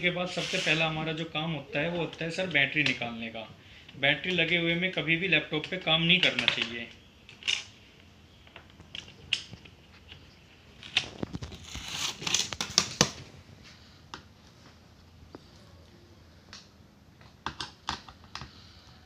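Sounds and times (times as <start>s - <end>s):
screwdriver scraping plastic: 0.3s - 0.8s
plastic parts clicking: 17.2s - 18.6s.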